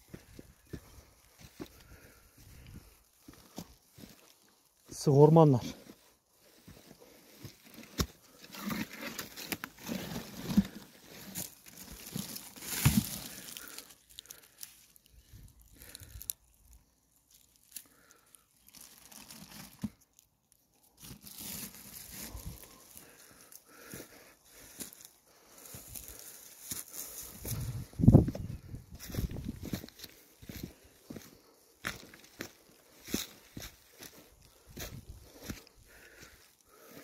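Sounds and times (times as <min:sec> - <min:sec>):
footsteps crunching through leaves: 0:00.0 - 0:16.2, 0:17.5 - 0:20.0, 0:20.9 - 0:37.0
person brushing through scrub: 0:05.8 - 0:14.0.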